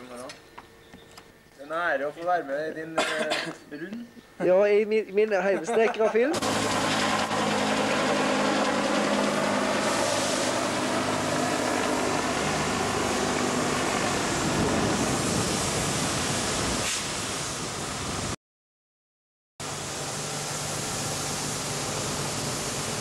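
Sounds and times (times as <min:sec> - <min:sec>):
car driving off: 0:06.4 - 0:15.3
helicopter flying overhead: 0:06.4 - 0:15.8, 0:19.6 - 0:23.0
steady rushing noise: 0:06.4 - 0:18.4.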